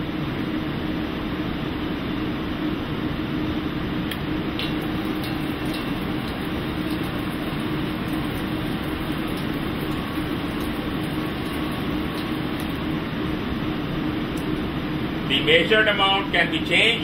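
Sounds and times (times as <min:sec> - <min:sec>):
faint hum: 0:00.0 - 0:17.0
water pouring into sink: 0:04.6 - 0:13.0.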